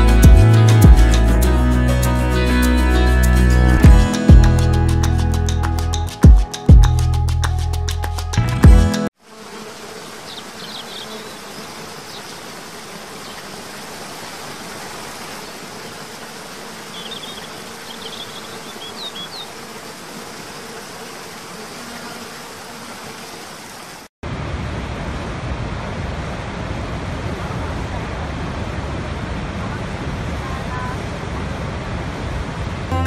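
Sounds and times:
deep roar of large waterfall: 24.2s - 32.9s.

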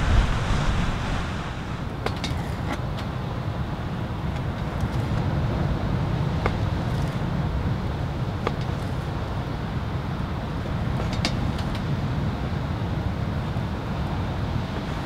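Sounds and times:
storm wind against tent: 0.0s - 6.0s.

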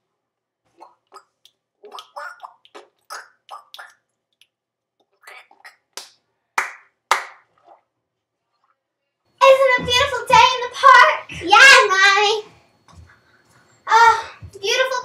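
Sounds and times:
child making vocal noises: 13.9s - 15.0s.

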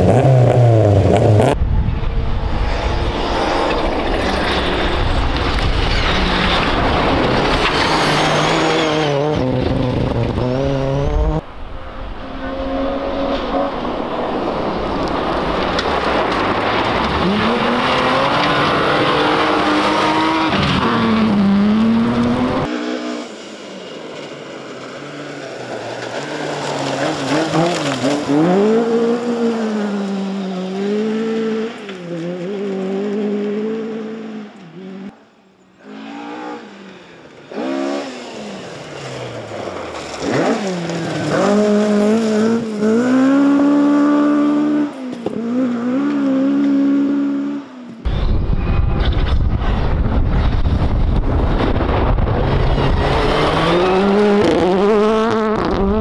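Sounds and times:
rally car engines revving: 0.0s - 56.0s
gravel spraying from tyres: 23.4s - 30.9s, 38.3s - 43.0s.

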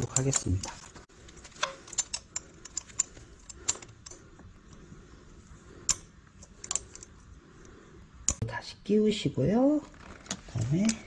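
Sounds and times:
hand tool clicking on metal screw: 0.0s - 4.2s.

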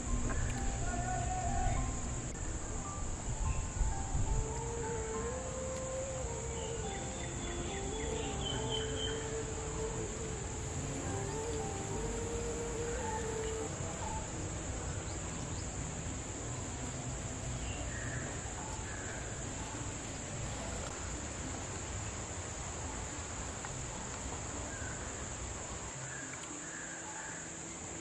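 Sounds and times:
high-pitched insect drone: 0.0s - 28.0s
faint bird calls: 4.5s - 15.8s.

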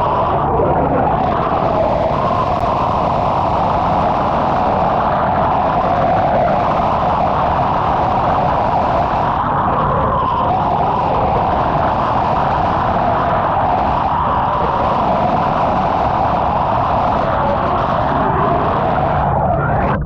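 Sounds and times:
underwater jet rushing: 0.0s - 20.0s.

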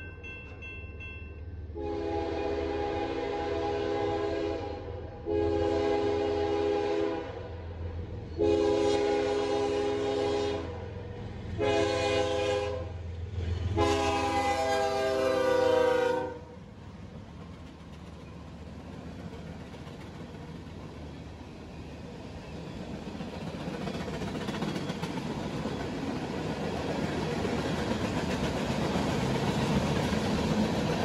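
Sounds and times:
locomotive air horn: 1.8s - 7.5s, 8.4s - 10.8s, 11.6s - 13.0s, 13.7s - 16.6s.

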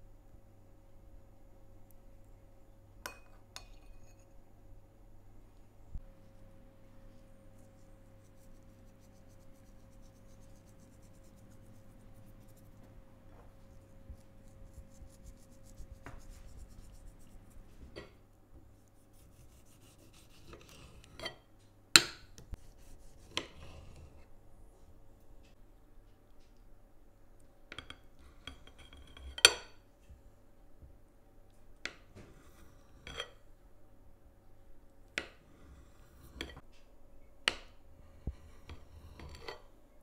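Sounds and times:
faint steady hum: 0.0s - 40.0s
hands rubbing spice into chicken: 7.6s - 12.8s, 13.6s - 17.9s.

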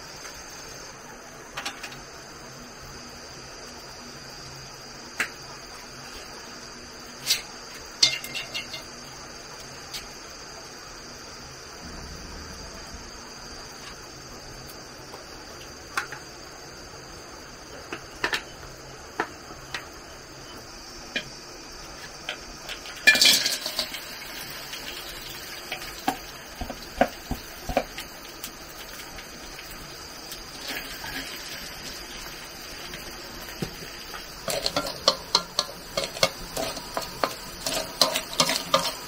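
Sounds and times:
crabs clattering into a wok: 8.0s - 8.9s, 22.7s - 28.0s, 33.6s - 39.0s
chopsticks clicking against wok: 34.5s - 39.0s.

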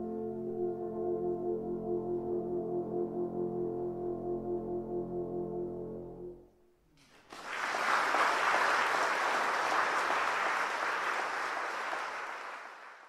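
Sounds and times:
audience applause: 7.0s - 13.0s.

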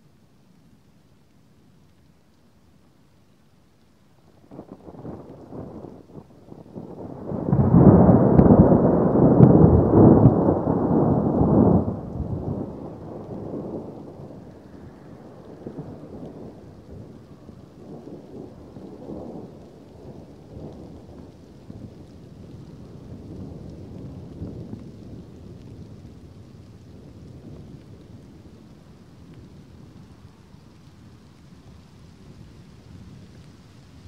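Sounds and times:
thunder rolling: 4.6s - 28.9s.

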